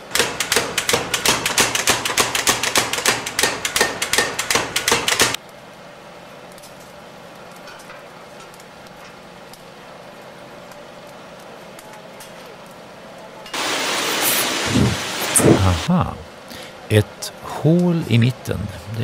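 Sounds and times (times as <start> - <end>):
hammer on steel bar: 0.0 - 5.4
faint hiss: 13.5 - 19.0.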